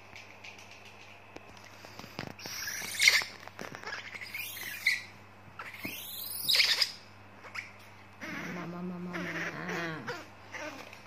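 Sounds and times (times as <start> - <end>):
baby monkey squealing: 2.4 - 10.8.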